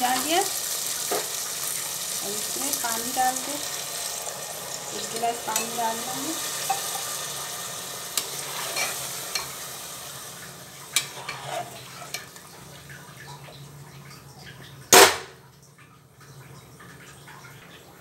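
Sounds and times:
curry sizzling in a pan: 0.0s - 13.4s.

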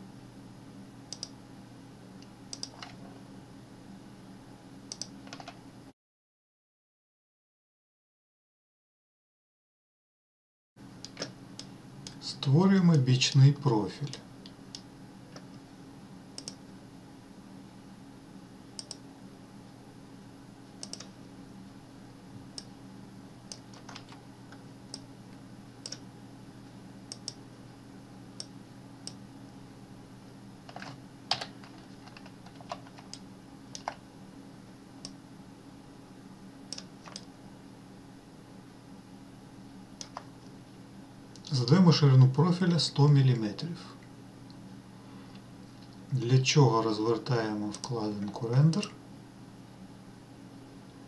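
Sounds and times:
low steady hum: 0.0s - 5.9s, 10.8s - 51.0s
computer mouse clicks: 1.1s - 1.4s, 2.5s - 3.0s, 4.9s - 5.6s, 11.0s - 12.2s, 16.4s - 16.6s, 18.8s - 19.0s, 20.8s - 21.1s, 23.5s - 24.2s, 25.8s - 26.0s, 27.1s - 27.4s, 30.7s - 34.0s, 36.7s - 37.3s, 40.0s - 40.3s
key presses: 30.7s - 33.2s, 33.8s - 34.0s.

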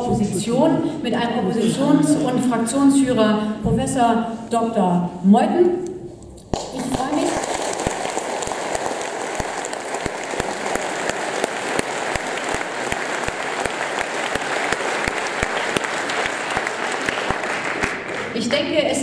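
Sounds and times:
audience applauding: 6.6s - 18.4s.

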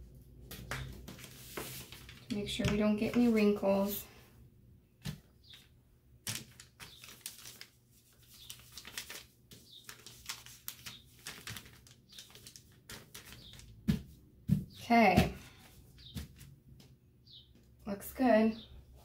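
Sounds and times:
paper rustling and crinkling: 0.5s - 4.0s, 5.0s - 14.6s.

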